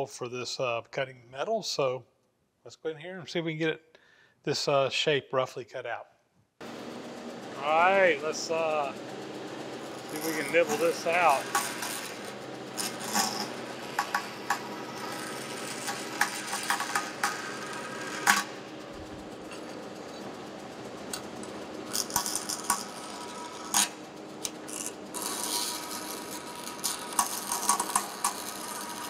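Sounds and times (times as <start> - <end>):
bandsaw cutting metal: 7.4 - 20.4, 21.0 - 29.0
sharp ticks and rattles: 7.8 - 29.0.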